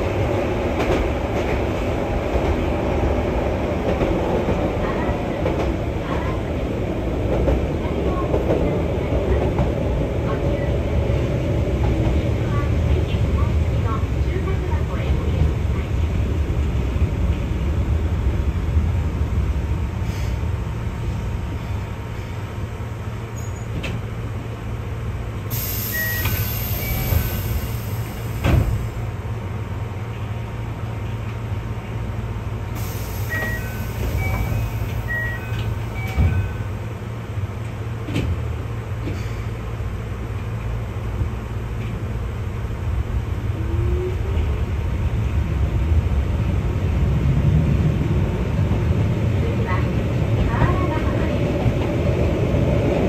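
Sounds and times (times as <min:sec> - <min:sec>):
tram rumbling with clacks: 0:00.0 - 0:53.0
high hiss: 0:25.5 - 0:29.0.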